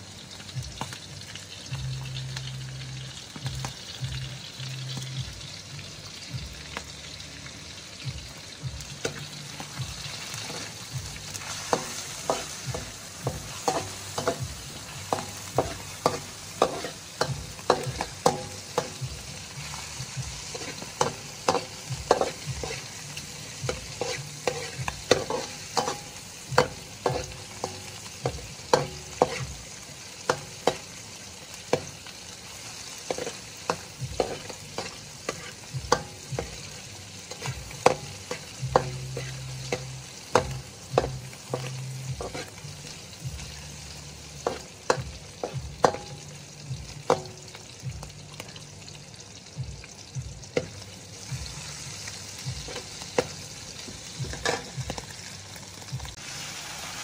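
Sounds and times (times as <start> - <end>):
food sizzling in hot oil: 0.0 - 57.0
metal ladle scraping wok: 10.3 - 31.0, 32.8 - 43.0.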